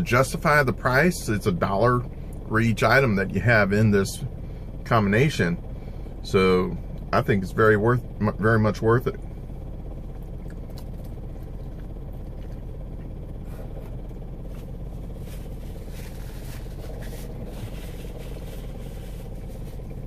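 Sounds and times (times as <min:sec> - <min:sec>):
car engine idling: 0:00.0 - 0:20.0
faint chewing: 0:10.0 - 0:19.2.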